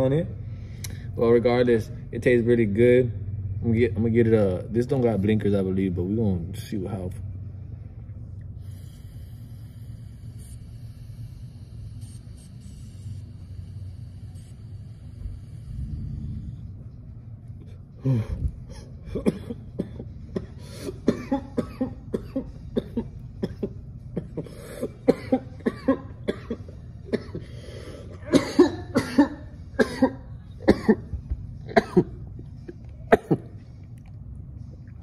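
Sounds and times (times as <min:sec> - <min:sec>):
man coughing: 0:18.0 - 0:33.6.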